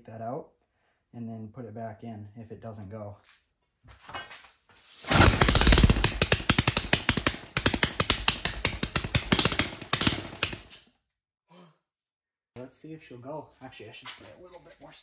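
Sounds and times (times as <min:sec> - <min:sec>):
small engine firing in sharp pops: 0:05.1 - 0:10.8.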